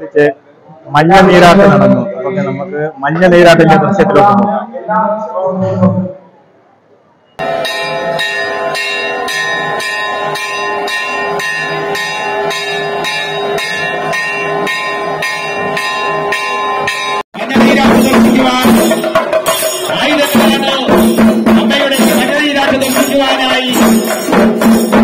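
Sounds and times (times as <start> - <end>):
hand cymbals clashing: 7.4 - 25.0
temple bell ringing: 7.4 - 25.0
drums beaten fast and loud: 17.4 - 25.0.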